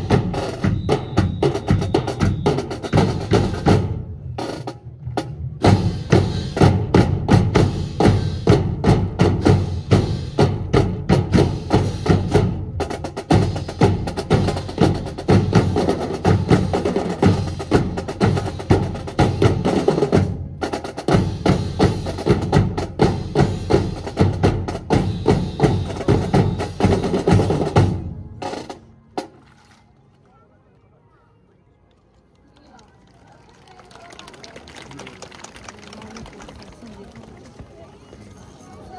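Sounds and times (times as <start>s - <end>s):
marching drums playing cadence: 0.0s - 29.4s.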